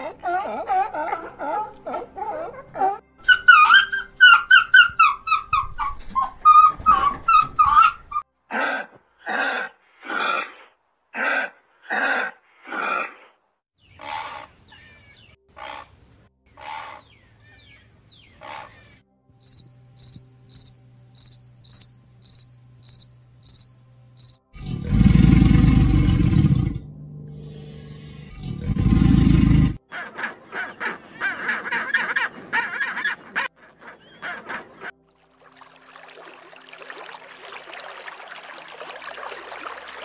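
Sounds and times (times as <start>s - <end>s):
sharp high chirps: 19.4s - 24.4s.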